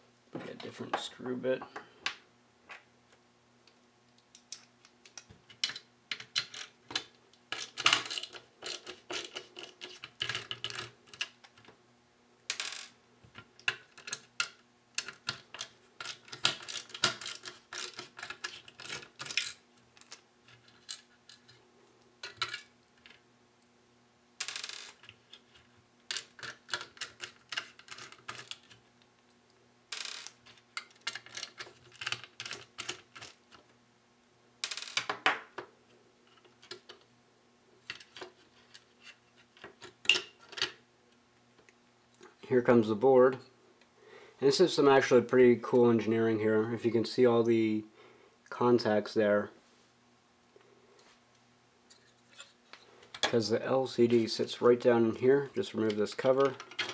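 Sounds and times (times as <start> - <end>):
screwdriver clicking and scraping: 4.4 - 11.3.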